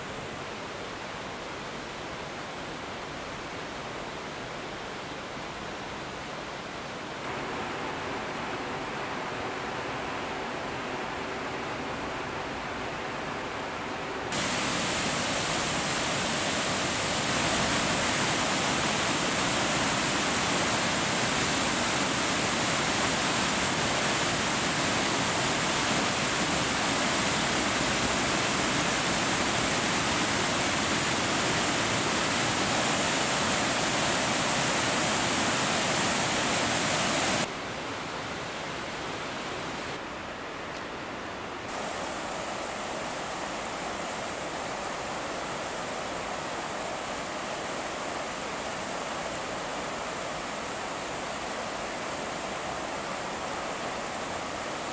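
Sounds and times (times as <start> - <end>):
water rushing over boulders: 0.0 - 40.0, 41.7 - 54.9.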